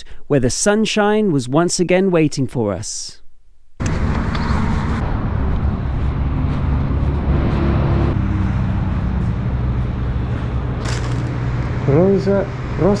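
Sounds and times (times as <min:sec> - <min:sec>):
engine low rumble: 0:03.8 - 0:13.0
road traffic noise: 0:03.8 - 0:13.0.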